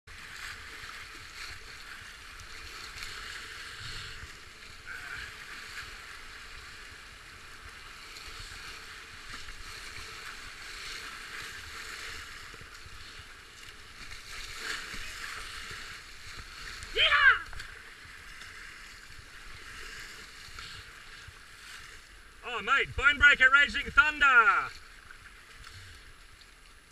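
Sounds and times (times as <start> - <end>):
paddle strokes and splashes: 0.1 - 26.9
whitewater rushing: 14.6 - 17.8, 22.4 - 24.7.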